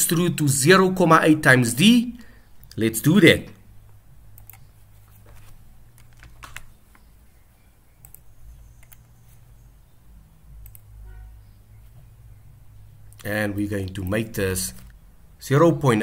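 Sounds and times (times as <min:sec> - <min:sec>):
faint low hum: 0:00.0 - 0:16.0
computer mouse and keyboard clicks: 0:04.4 - 0:07.1, 0:08.0 - 0:09.6, 0:10.6 - 0:10.9.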